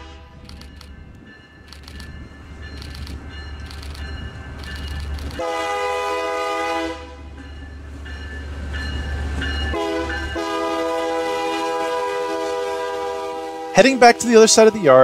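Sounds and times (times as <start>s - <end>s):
locomotive horn blasts: 0.0s - 0.5s, 5.4s - 7.3s, 9.7s - 14.8s.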